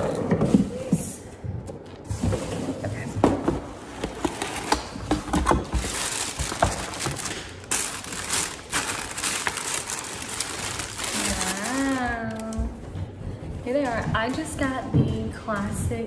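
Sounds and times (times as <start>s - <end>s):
paper wrapping crinkling: 4.0s - 12.7s.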